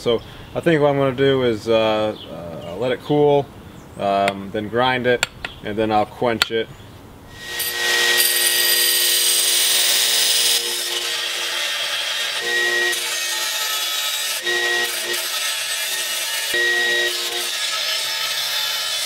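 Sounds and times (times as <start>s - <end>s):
belt grinder grinding steel: 7.3s - 19.0s
grinder motor hum: 7.4s - 19.0s.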